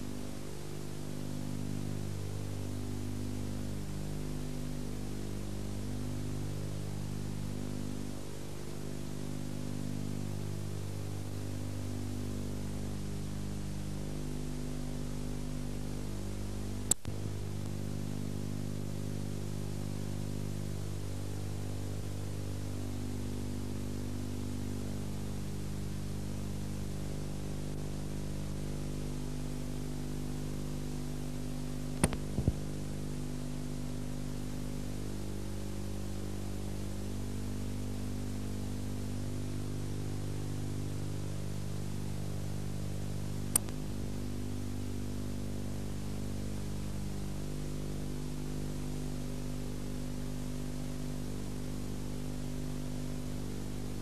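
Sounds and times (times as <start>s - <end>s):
steady electrical hum: 0.0s - 54.0s
tape hiss: 0.0s - 54.0s
sharp clicks: 32.0s - 32.6s, 43.5s - 43.8s.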